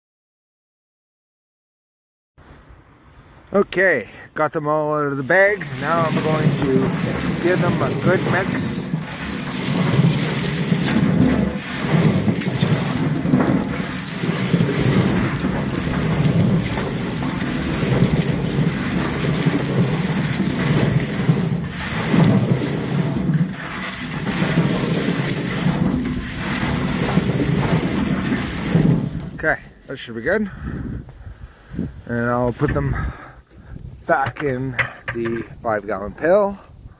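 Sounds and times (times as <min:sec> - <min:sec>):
bulbs tumbling in a pail: 0:05.1 - 0:29.7, 0:34.0 - 0:35.8.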